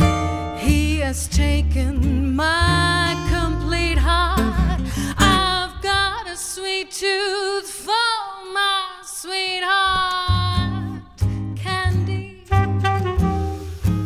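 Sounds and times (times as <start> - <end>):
double bass: 0.0 - 6.3, 10.3 - 14.0
acoustic guitar: 0.0 - 8.0, 9.6 - 14.0
woman singing jazz with vibrato: 0.6 - 13.0.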